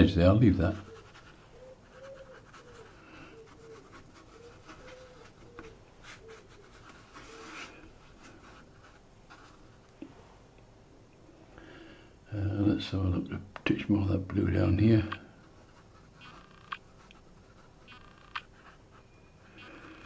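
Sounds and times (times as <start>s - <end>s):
brush strokes on damp paper: 0.6s - 10.4s, 15.3s - 19.9s
faint short tone: 19.0s - 20.0s.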